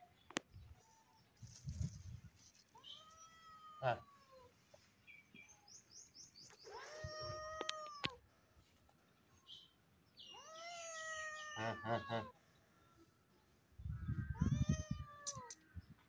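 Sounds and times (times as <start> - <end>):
cat meowing: 2.8 - 4.5, 6.6 - 8.2, 10.3 - 12.4, 14.2 - 15.6
bird chirping: 4.8 - 8.2, 9.0 - 11.6.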